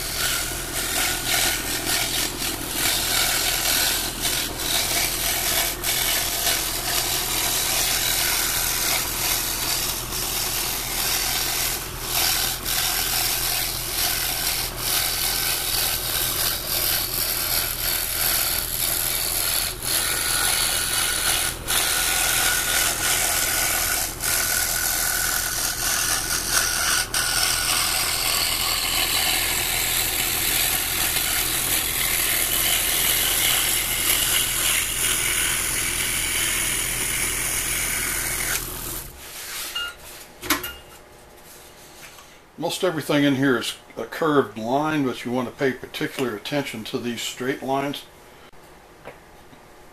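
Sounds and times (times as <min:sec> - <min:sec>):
scroll saw rasping through wood: 0:00.0 - 0:39.2
motor hum: 0:00.0 - 0:39.3.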